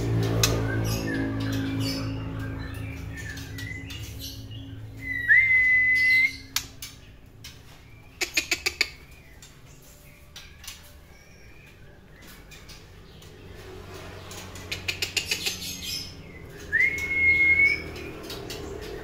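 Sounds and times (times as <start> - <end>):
sharp clicking bird notes: 0.0 - 13.6, 14.2 - 19.0
bird singing: 0.0 - 19.0
clear rising bird whistle: 5.0 - 6.6, 16.6 - 18.0.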